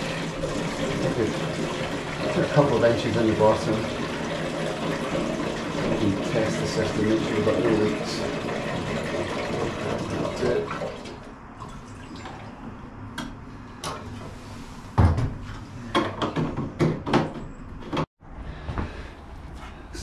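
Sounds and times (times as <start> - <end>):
diesel pouring into plastic tank: 0.0 - 12.6.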